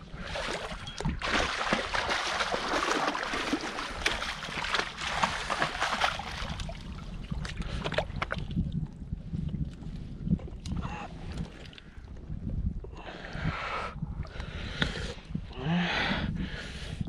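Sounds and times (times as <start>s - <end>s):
fish splashing in water: 0.4s - 6.7s.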